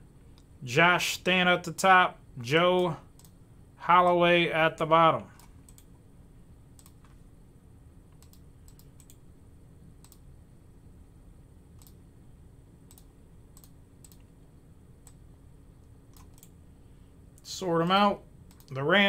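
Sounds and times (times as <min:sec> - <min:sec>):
low electrical hum: 0:00.0 - 0:19.0
mouse and keyboard clicks: 0:16.1 - 0:16.5.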